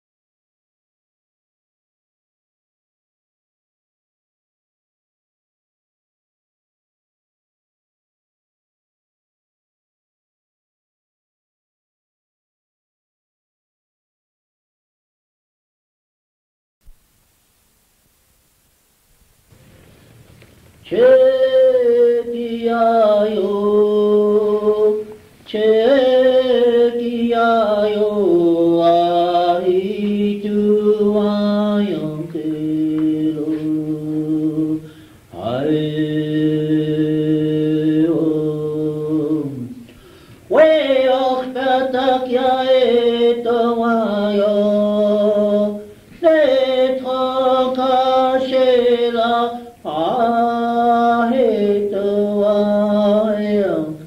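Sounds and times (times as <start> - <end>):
person chanting unaccompanied: 20.8 - 54.0.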